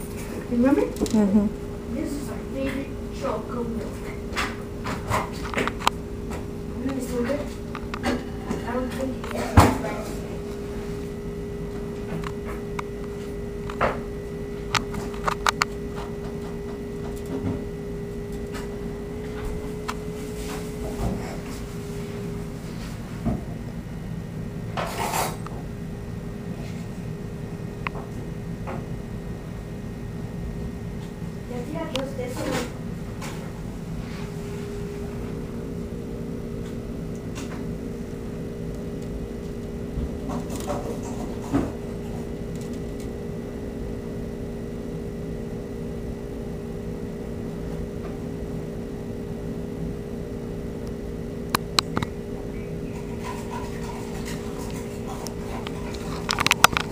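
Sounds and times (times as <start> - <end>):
steady low hum: 0.0 - 56.9
sharp clicks and taps: 51.5 - 52.1.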